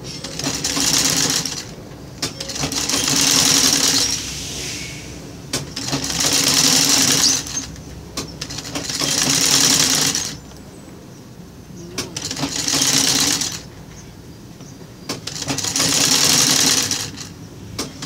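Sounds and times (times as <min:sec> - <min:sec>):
sewing machine stitching: 0:00.2 - 0:04.2, 0:05.6 - 0:10.4, 0:12.0 - 0:13.7, 0:15.1 - 0:18.0.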